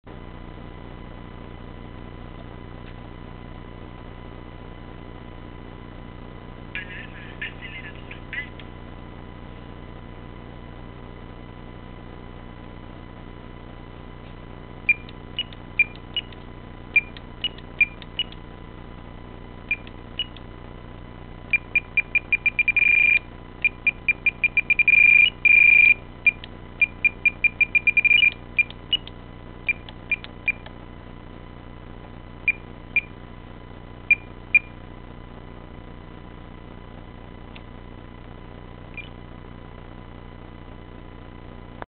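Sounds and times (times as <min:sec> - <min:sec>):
transmitter beeping: 0:14.9 - 0:16.4, 0:17.0 - 0:18.4, 0:19.7 - 0:20.4, 0:21.5 - 0:29.1, 0:29.7 - 0:30.7, 0:32.5 - 0:33.2, 0:34.1 - 0:34.8, 0:38.9 - 0:39.2.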